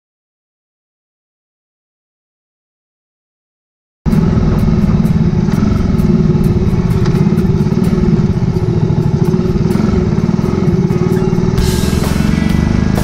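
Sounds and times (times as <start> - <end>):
motorcycle engine running: 4.1 - 13.0.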